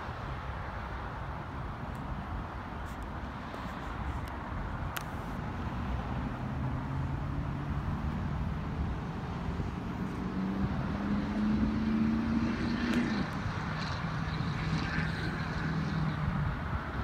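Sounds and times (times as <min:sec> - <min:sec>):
vehicle engine passing: 0:05.4 - 0:17.0.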